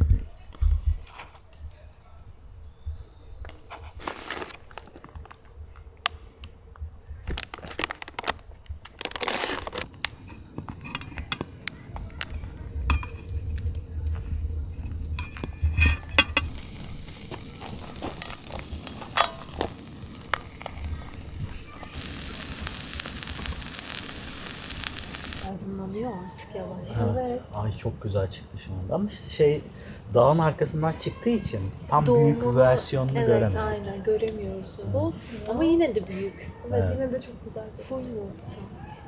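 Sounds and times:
steady hiss: 3.7s - 38.3s
dishes and utensils clinking: 10.2s - 11.6s, 12.9s - 13.4s, 15.2s - 16.9s.

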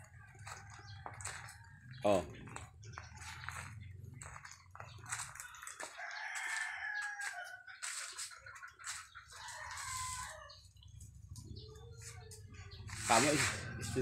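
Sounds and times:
rooster crowing: 5.8s - 7.7s, 9.4s - 10.6s.

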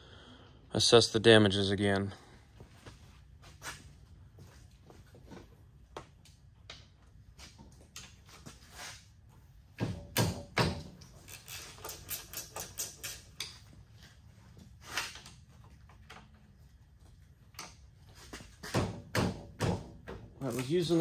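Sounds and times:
tools and metal parts clicking: 11.0s - 13.6s.

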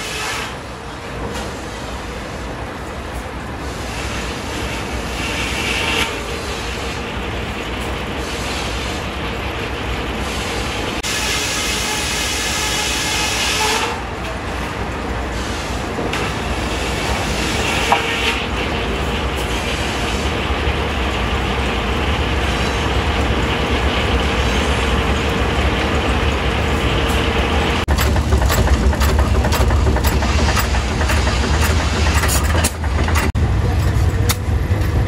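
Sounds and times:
stationary gas engine rumbling: 0.5s - 35.0s
sawmill machinery running: 4.0s - 35.0s
steady mechanical whine: 14.1s - 35.0s.

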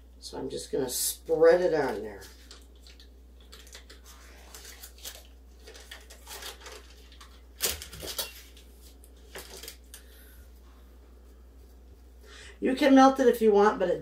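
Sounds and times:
paper wrapper rustling and crinkling: 1.8s - 10.1s.

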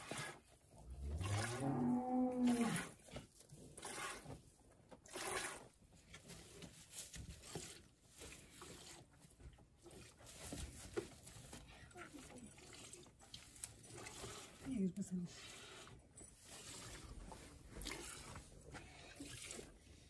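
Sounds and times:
cattle mooing: 1.0s - 2.9s.

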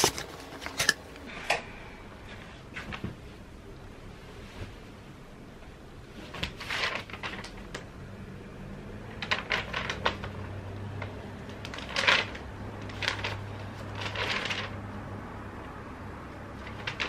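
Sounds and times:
paper rustling and crinkling: 6.2s - 7.8s, 11.6s - 14.8s.

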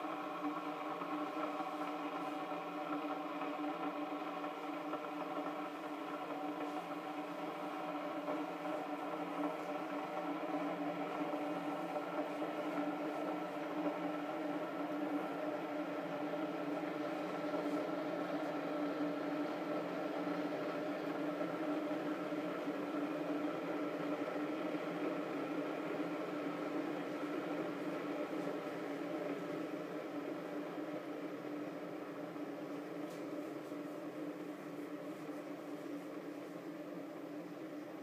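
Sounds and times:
coffee maker humming: 0.0s - 38.0s.

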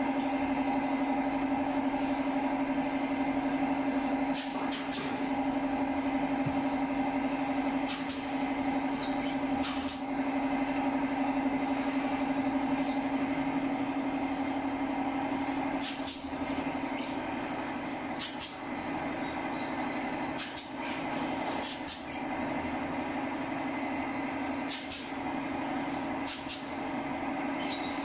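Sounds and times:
air compressor humming: 0.0s - 28.0s
pneumatic clip gun air hisses: 4.3s - 5.2s, 7.8s - 8.3s, 15.8s - 16.3s, 18.1s - 18.6s, 20.4s - 20.8s, 21.6s - 22.1s, 24.7s - 25.2s, 26.2s - 26.7s.

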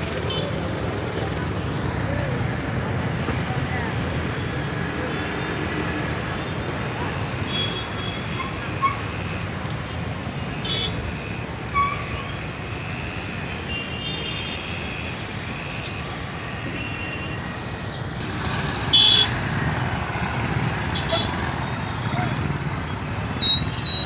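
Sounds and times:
passing traffic rumble: 0.0s - 24.0s
car horn toot: 18.9s - 19.3s.

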